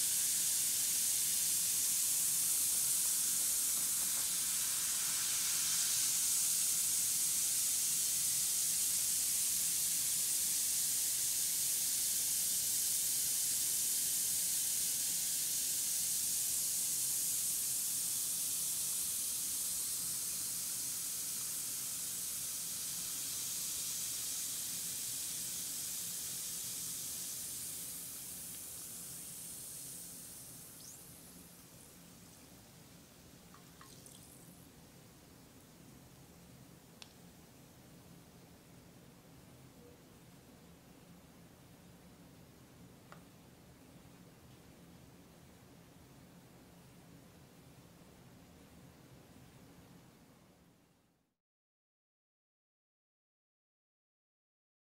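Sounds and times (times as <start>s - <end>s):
bath bomb fizzing: 0.1s - 31.0s, 33.6s - 34.5s.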